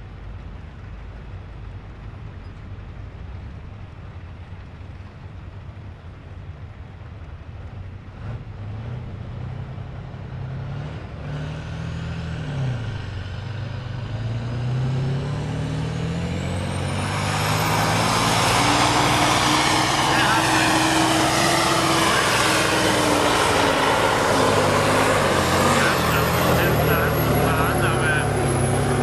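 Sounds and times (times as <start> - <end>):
tractor diesel engine revving: 8.1 - 29.0
high rising whine: 13.1 - 29.0.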